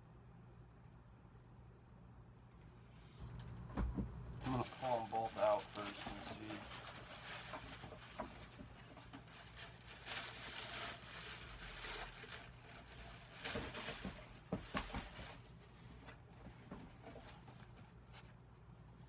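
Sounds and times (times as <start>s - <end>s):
rustling of packaging: 3.2s - 18.4s.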